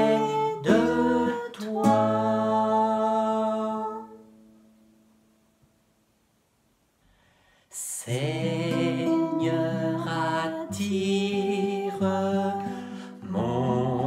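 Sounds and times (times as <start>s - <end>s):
man and woman singing: 0.0s - 4.3s, 7.7s - 14.0s
acoustic guitar chords: 0.0s - 5.3s, 8.1s - 14.0s.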